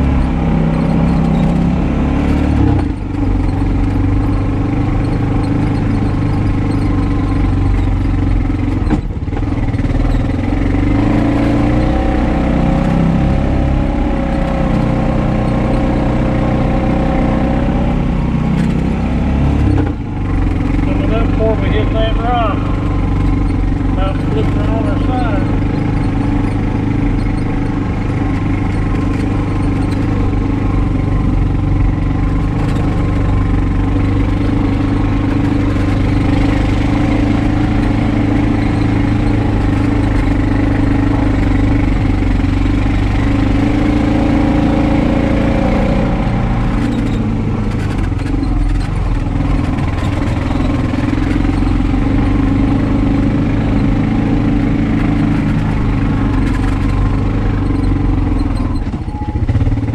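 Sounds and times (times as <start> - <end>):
vehicle engine running: 0.0 - 59.9.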